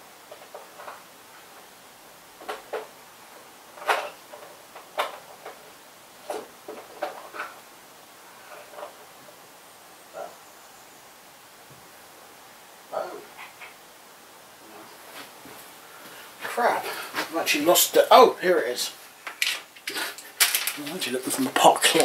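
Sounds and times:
objects knocking and clattering: 0:02.4 - 0:02.9, 0:03.7 - 0:07.6, 0:19.3 - 0:22.0.

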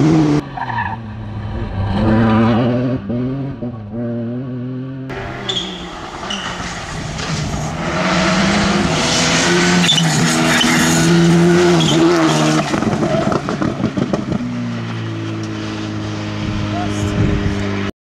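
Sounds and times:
rally car engine revving: 0:00.0 - 0:17.9
gravel hissing from tyres: 0:05.1 - 0:11.0.

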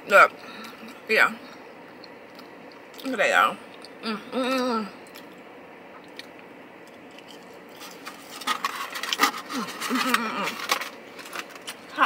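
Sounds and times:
crunching and chewing fries: 0:05.0 - 0:12.0.

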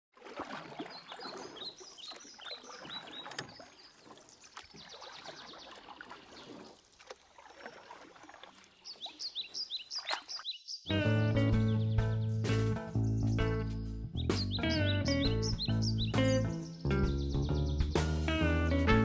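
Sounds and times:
water splashing: 0:00.1 - 0:10.6
kayak paddle strokes: 0:00.2 - 0:10.4.

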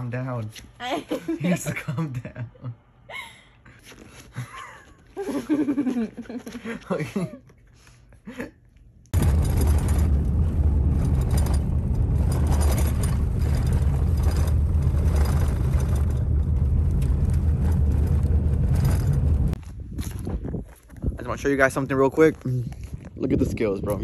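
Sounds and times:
car engine and tyre rumble: 0:09.2 - 0:21.8.

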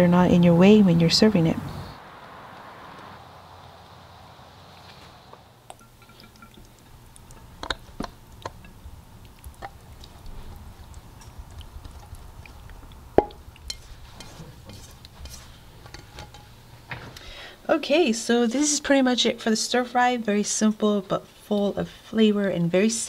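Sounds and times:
wet food drips and plops: 0:05.6 - 0:15.2.

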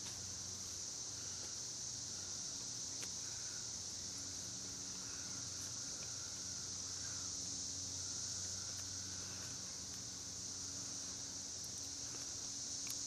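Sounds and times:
insect chorus droning: 0:00.0 - 0:13.0.

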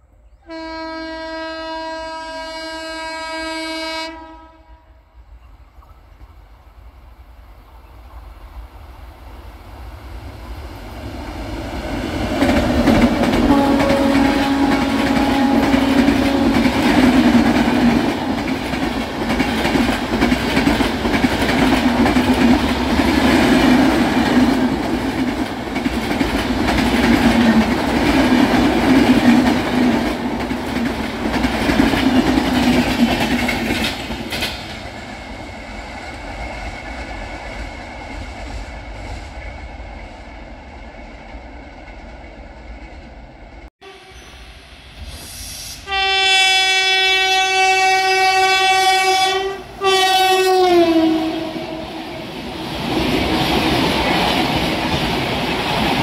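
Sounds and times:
train horn: 0:00.4 - 0:05.2, 0:13.3 - 0:17.4, 0:43.8 - 0:44.6, 0:45.7 - 0:52.3
train wheels clattering over rail joints: 0:12.3 - 0:35.1.

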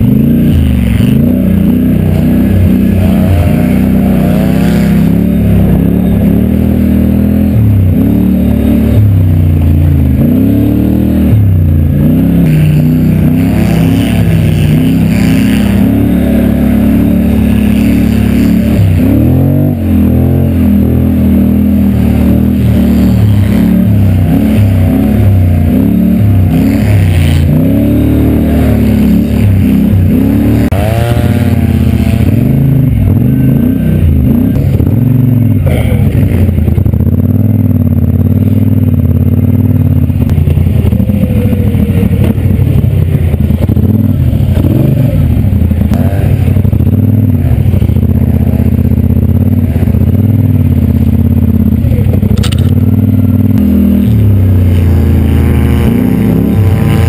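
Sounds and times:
atv engine revving: 0:00.0 - 0:57.0.

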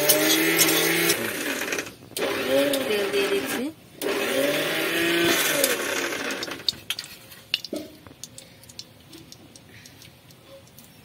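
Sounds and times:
loud whirring noise: 0:00.0 - 0:06.6
hot oil crackling: 0:03.9 - 0:11.0.

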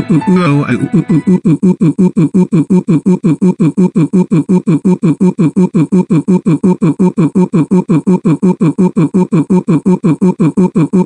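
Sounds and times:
cartoon crying sobs: 0:00.0 - 0:01.7.

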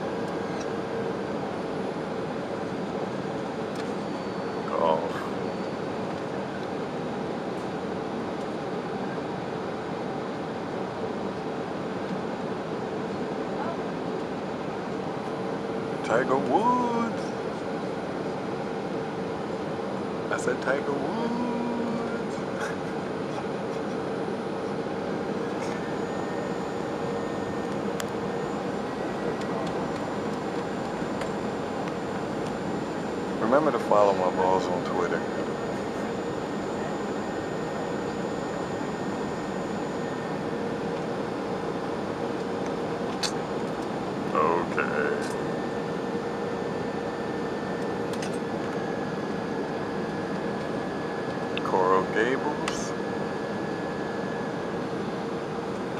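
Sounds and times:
jet engine and airflow rush: 0:00.0 - 0:55.9
steady cabin hum: 0:15.1 - 0:55.9
high whine: 0:19.0 - 0:55.9.

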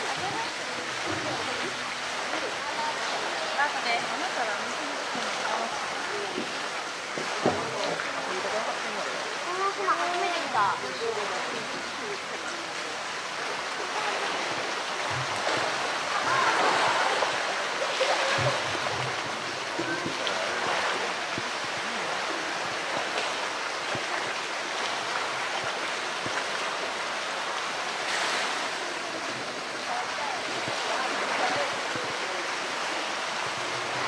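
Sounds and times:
running water: 0:00.0 - 0:34.0
splashing water: 0:00.0 - 0:34.0.

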